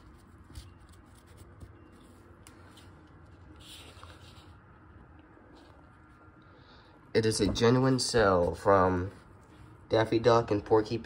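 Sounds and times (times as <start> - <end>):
paper folder rustling: 0.0 - 4.6.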